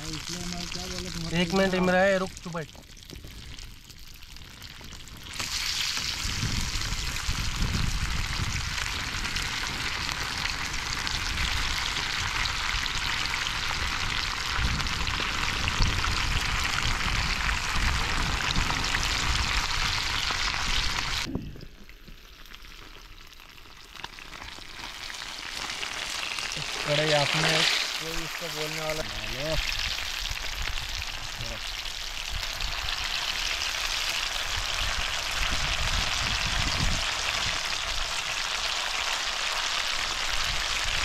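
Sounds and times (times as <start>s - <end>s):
fish frying in hot oil: 0.0s - 41.0s
faint hiss: 26.4s - 29.7s.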